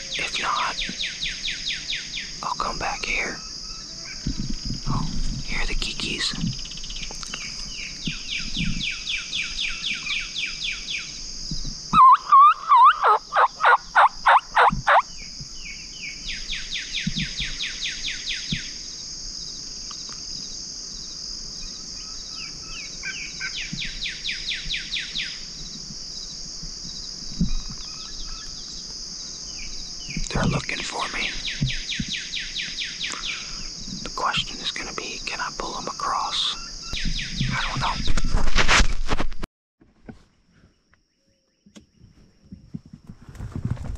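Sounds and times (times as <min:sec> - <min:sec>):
insect chorus: 0:00.0 - 0:39.2, 0:40.1 - 0:43.9
turkey call yelps: 0:12.0 - 0:15.0
bird trilling: 0:12.0 - 0:15.1.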